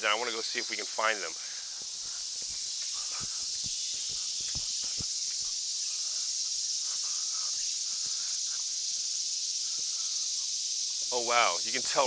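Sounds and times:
cicadas droning: 0.0 - 12.0
footsteps on asphalt: 1.7 - 5.6.

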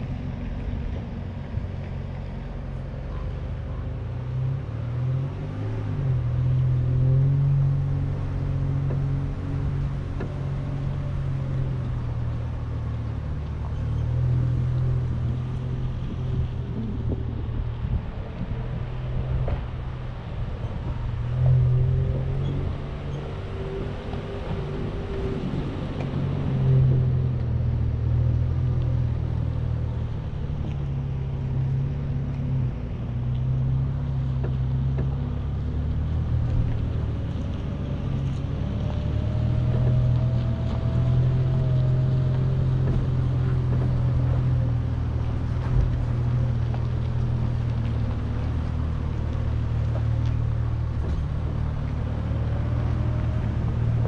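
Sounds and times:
engine and drivetrain drone: 0.0 - 54.0.

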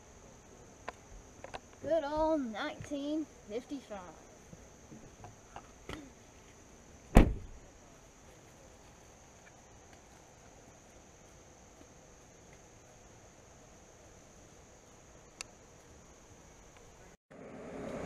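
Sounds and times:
insects buzzing: 0.0 - 18.0
car door slamming: 7.1 - 7.6.

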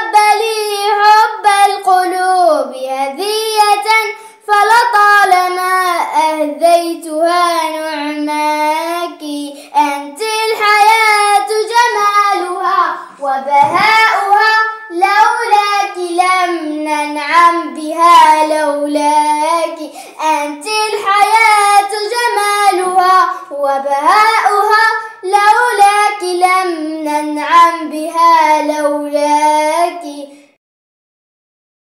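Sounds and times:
girl singing solo: 6.4 - 30.4.

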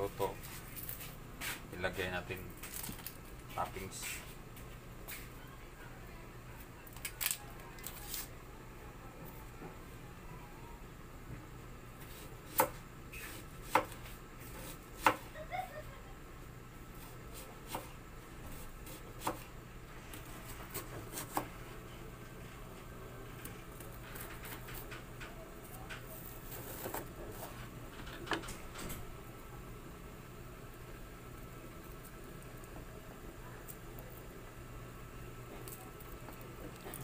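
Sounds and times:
low steady hum: 0.0 - 37.0.

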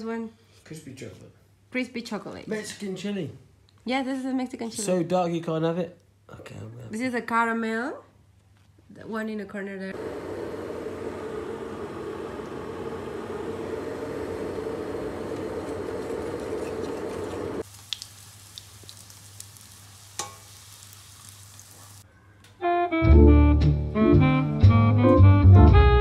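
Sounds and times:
pancakes sizzling in pan: 14.1 - 22.0
whisk beating batter in bowl: 15.6 - 17.6.

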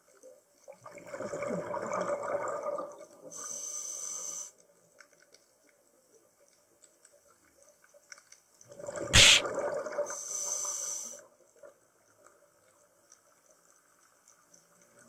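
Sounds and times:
regulator inhale hiss: 3.4 - 4.5, 9.2 - 9.4, 10.2 - 11.2.

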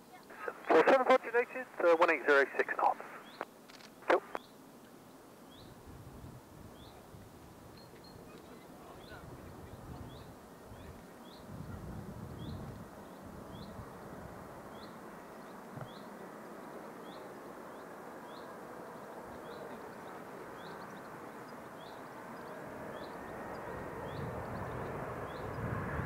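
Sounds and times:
distant jet rumble: 0.3 - 4.4, 5.7 - 26.0.

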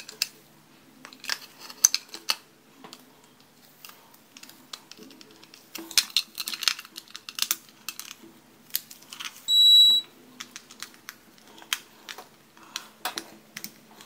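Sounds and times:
high electronic beep: 9.5 - 10.1.

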